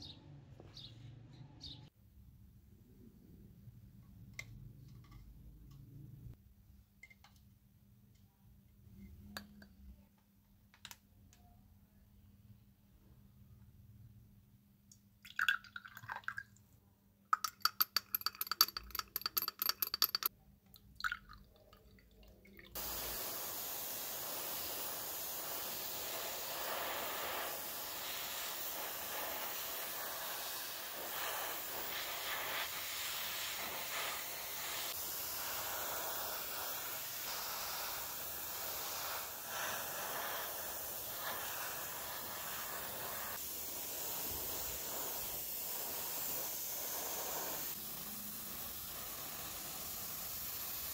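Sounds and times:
compressed air spraying hiss: 22.8s - 50.9s.

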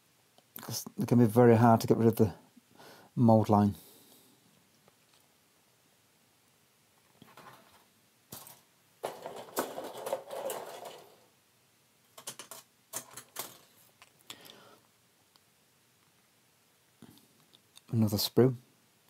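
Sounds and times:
plastic sprues rattling and rustling: 7.2s - 11.3s, 12.1s - 14.1s.

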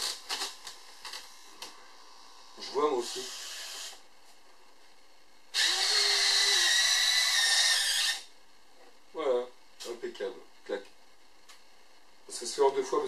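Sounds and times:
small motors whirring: 3.0s - 4.0s, 5.5s - 8.3s.

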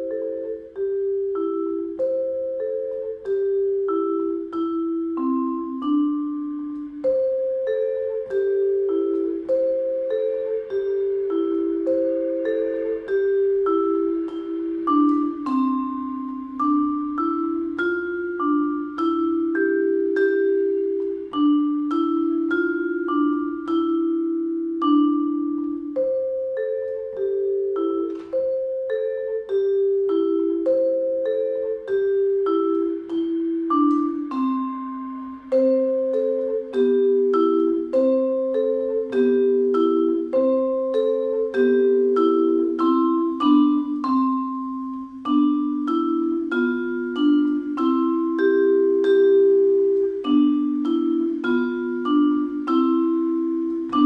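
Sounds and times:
vibraphone with soft mallets: 0.0s - 54.0s.

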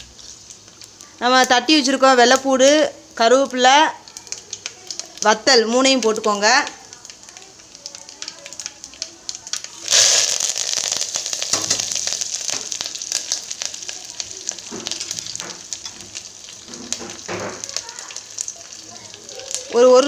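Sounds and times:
loud sizzle with spitting crackles: 0.0s - 20.0s.

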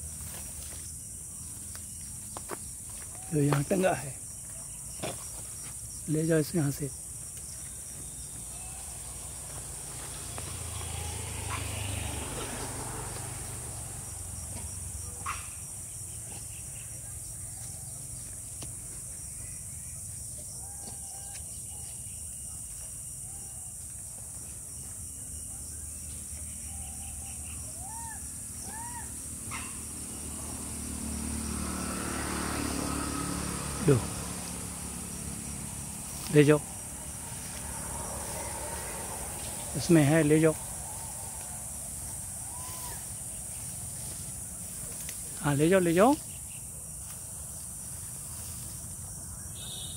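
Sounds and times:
insect chorus: 0.0s - 49.9s.

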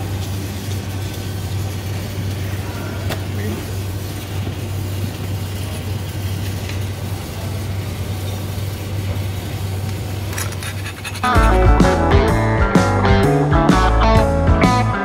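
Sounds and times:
guitar rock music: 11.2s - 15.0s.

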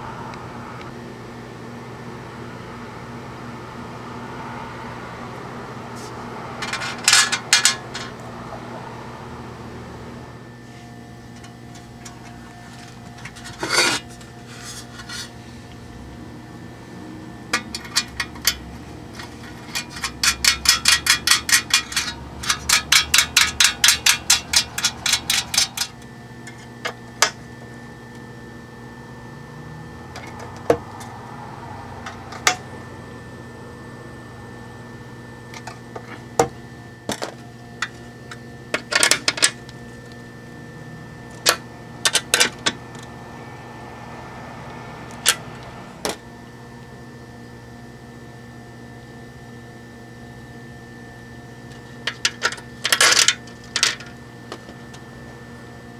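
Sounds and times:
metal hardware clicking on chassis: 17.5s - 26.6s.

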